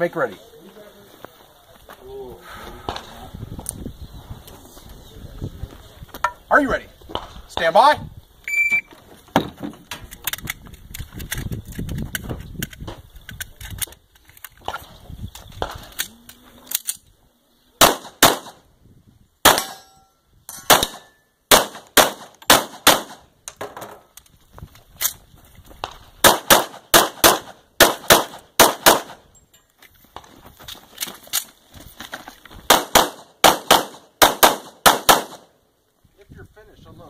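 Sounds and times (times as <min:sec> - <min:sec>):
knocks and rustling of movement: 0:08.8 - 0:17.1, 0:23.4 - 0:26.3, 0:29.1 - 0:33.4
pistol shots: 0:17.8 - 0:18.6, 0:19.4 - 0:19.9, 0:20.6 - 0:23.3, 0:25.8 - 0:29.2, 0:32.7 - 0:35.5.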